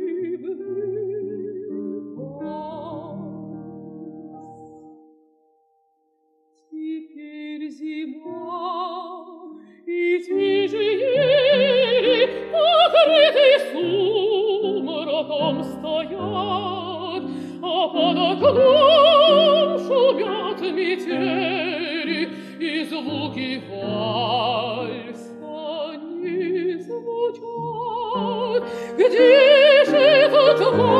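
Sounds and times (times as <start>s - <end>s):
woman singing operatically: 0.0s - 3.3s, 6.8s - 30.9s
grand piano accompaniment: 0.0s - 6.4s, 8.2s - 30.9s.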